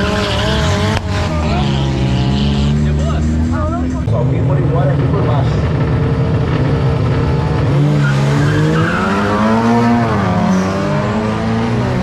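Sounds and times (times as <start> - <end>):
tyre squeal: 0.0 - 0.8, 8.0 - 10.9
car engine accelerating hard: 0.0 - 12.0.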